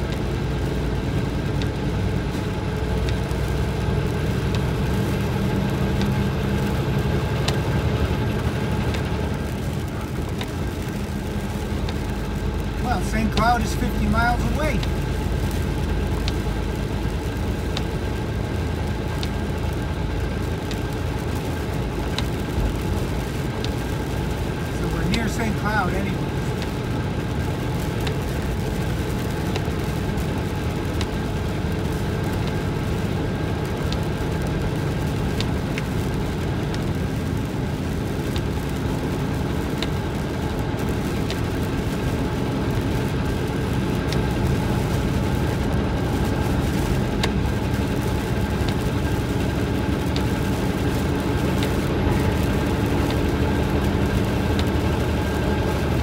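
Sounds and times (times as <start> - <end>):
car road noise on wet road: 0.0 - 56.0
faint ticks: 1.6 - 1.8, 3.0 - 3.6, 5.9 - 6.8, 11.5 - 12.1, 13.4 - 17.9, 19.1 - 19.8, 22.1 - 23.8, 27.4 - 30.3, 38.2 - 41.9, 46.7 - 50.6.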